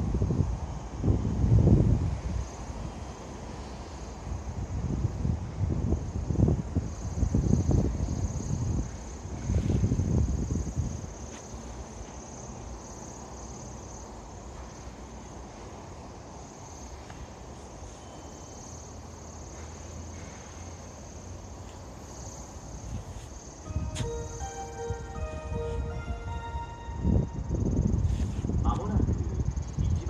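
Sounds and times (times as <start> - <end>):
wind rumble on microphone: 0.0 - 3.2, 4.1 - 11.2, 27.0 - 30.0.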